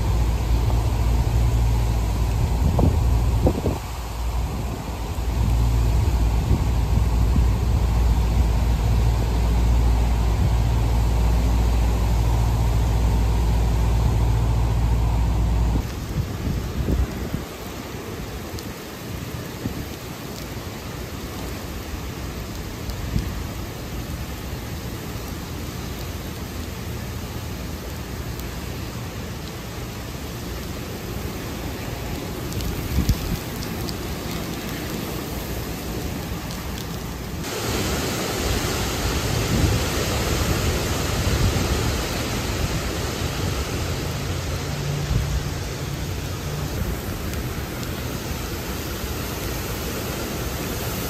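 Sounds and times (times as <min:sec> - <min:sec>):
wind gusts on microphone: 0:00.0 - 0:20.2, 0:31.2 - 0:51.0
heavy rain downpour: 0:00.0 - 0:51.0.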